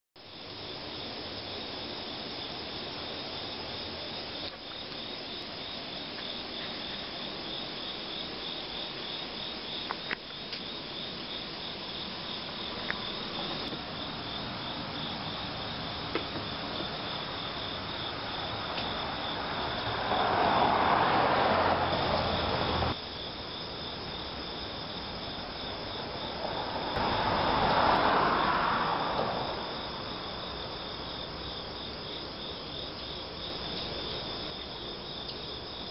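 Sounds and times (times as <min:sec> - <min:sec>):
insects trilling: 0:00.2 - 0:35.9
rushing noise: 0:11.7 - 0:23.0, 0:25.7 - 0:30.8.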